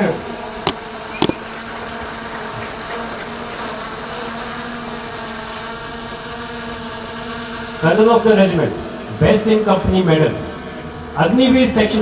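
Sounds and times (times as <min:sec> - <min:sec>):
steady buzzing drone: 0:00.0 - 0:12.0
sharp click: 0:00.6 - 0:01.4.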